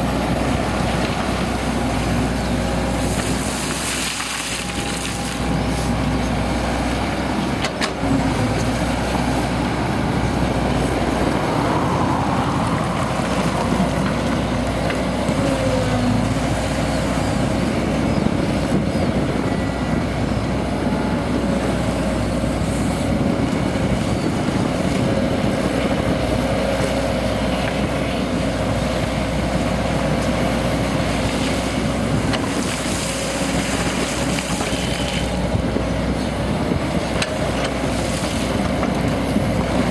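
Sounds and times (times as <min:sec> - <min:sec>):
excavator diesel engine running: 0:00.0 - 0:39.9.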